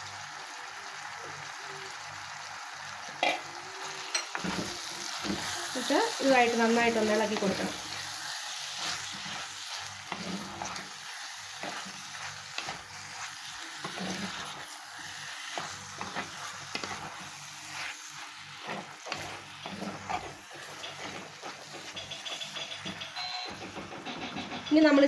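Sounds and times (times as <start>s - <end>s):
food sizzling in hot oil: 0.0s - 25.0s
wooden spatula scraping pot: 4.2s - 23.3s.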